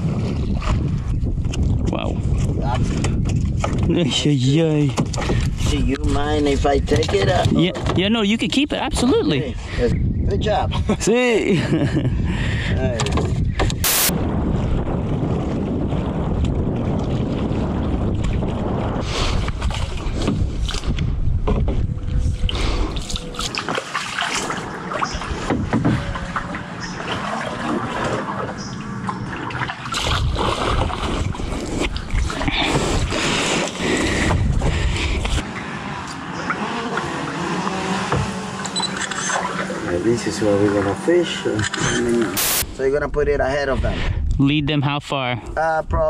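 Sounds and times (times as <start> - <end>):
wind buffeting microphone: 0.0 - 37.2, 42.1 - 46.0
paddle strokes splashing water: 22.7 - 40.0.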